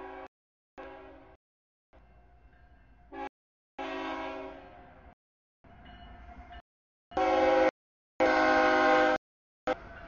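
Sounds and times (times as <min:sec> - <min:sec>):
locomotive air horn: 0:00.0 - 0:01.4, 0:03.1 - 0:04.8, 0:07.2 - 0:09.9.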